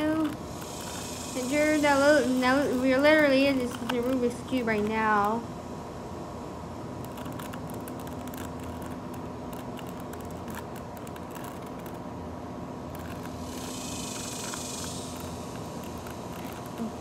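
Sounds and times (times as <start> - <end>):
high hiss: 0.0 - 3.6, 13.0 - 17.0
steady hum: 0.0 - 17.0
puzzle cube twisting clicks: 3.5 - 5.4, 7.0 - 12.0, 12.9 - 17.0.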